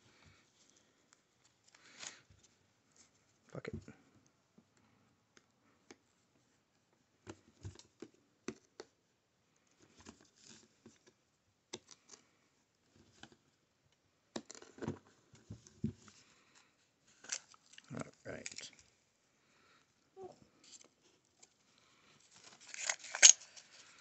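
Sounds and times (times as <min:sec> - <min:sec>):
plastic wrap crinkling: 0:22.3 - 0:24.0.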